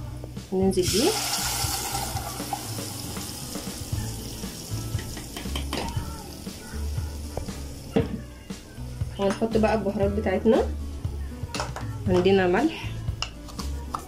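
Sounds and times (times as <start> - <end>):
liquid pouring and splashing: 0.8 - 5.4
oil sizzling: 0.8 - 8.2.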